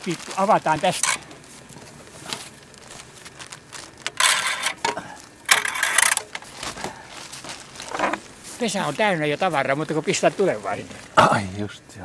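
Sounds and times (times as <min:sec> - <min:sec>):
damper rattling and scraping: 0:03.8 - 0:08.4.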